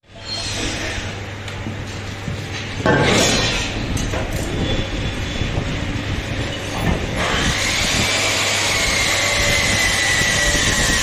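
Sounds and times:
electric motor whining: 7.1s - 11.0s.

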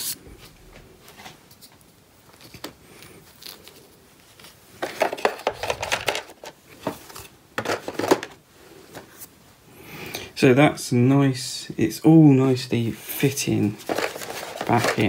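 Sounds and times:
rustling and clattering of pieces: 1.1s - 9.2s, 13.7s - 15.0s.

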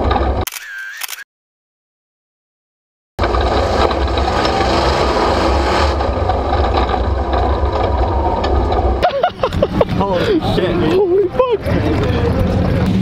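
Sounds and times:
pickup truck engine running: 3.2s - 13.0s.

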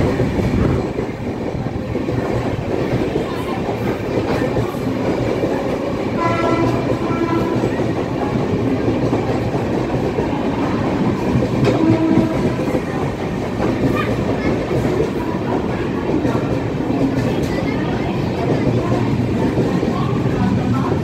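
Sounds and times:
train wheels clattering on rails: 0.0s - 21.0s
train horn: 6.2s - 7.8s, 11.6s - 12.7s.

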